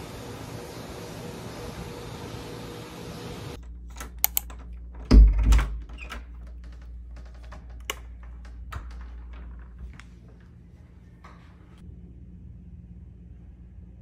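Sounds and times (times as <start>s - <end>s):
door thud: 5.0s - 6.1s.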